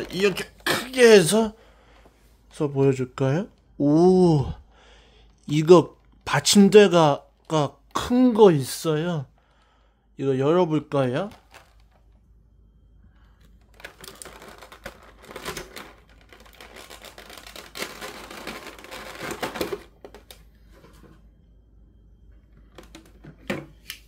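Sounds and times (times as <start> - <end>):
packaging rustling: 0.0 - 1.5, 11.2 - 12.1, 13.4 - 21.1.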